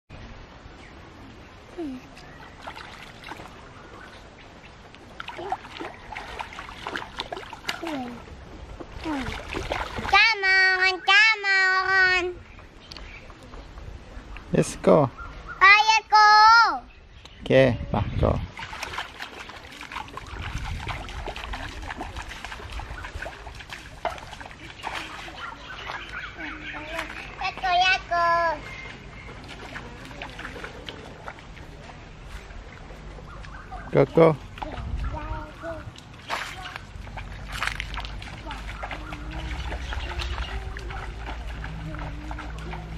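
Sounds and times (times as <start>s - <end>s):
stream water trickling: 0.1s - 16.1s, 16.7s - 42.9s
splashes in shallow water: 1.8s - 11.1s, 18.2s - 42.9s.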